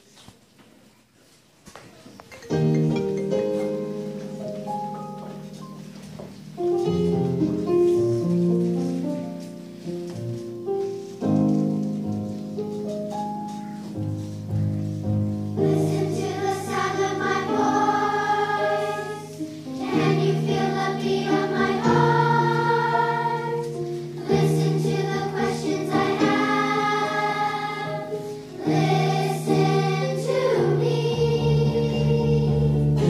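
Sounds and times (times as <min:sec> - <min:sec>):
children's choir singing: 0:15.5 - 0:33.0.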